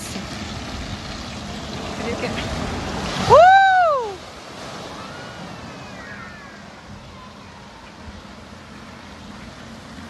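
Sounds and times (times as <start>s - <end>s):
water cascading and splashing: 0.0s - 10.0s
distant children's voices: 4.7s - 10.0s.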